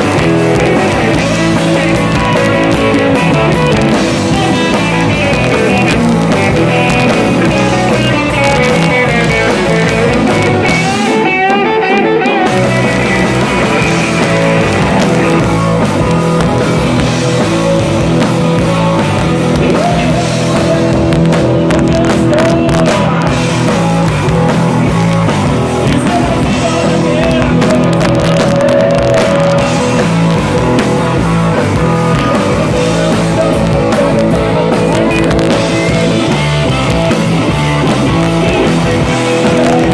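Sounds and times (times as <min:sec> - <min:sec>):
lead guitar bending notes: 0:00.0 - 0:39.9
rock band playing loud: 0:00.0 - 0:39.9.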